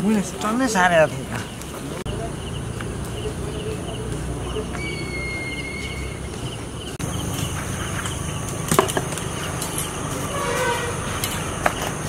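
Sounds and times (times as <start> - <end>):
insects chirping: 0.0 - 12.0
steady hiss: 7.0 - 12.0.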